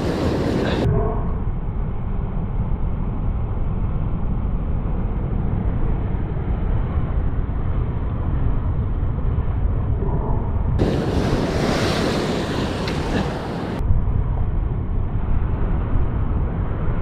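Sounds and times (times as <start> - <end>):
wind buffeting microphone: 0.0 - 17.0
surf breaking against rocks: 10.8 - 13.8.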